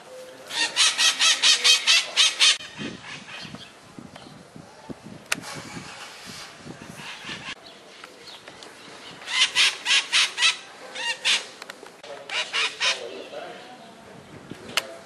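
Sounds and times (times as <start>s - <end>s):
parakeets screeching: 12.3s - 13.3s.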